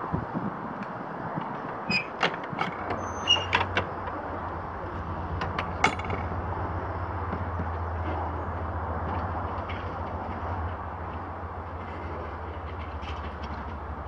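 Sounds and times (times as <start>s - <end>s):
diesel locomotive engine drone: 0.0s - 14.0s
short metallic squeaks: 1.9s - 3.7s.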